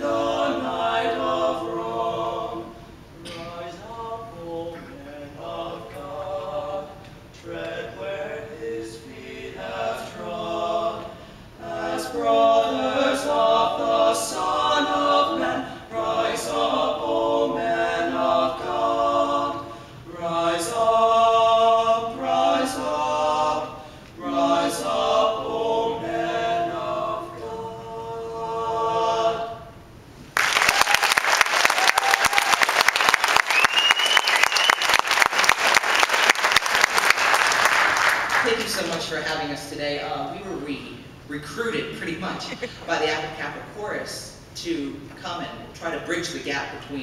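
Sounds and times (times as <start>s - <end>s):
male quartet singing in harmony: 0.0s - 29.9s.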